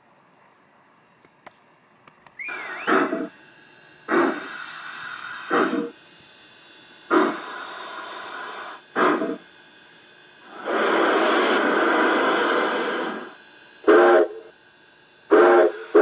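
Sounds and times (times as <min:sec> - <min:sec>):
short squeal: 0:02.4 - 0:03.3
steam hiss: 0:02.4 - 0:03.3, 0:04.1 - 0:06.0, 0:07.1 - 0:09.4, 0:10.4 - 0:14.5, 0:15.3 - 0:16.0
model steam locomotive chuffing: 0:02.4 - 0:03.4, 0:04.0 - 0:06.0, 0:07.0 - 0:09.5, 0:10.4 - 0:14.6, 0:15.2 - 0:16.0.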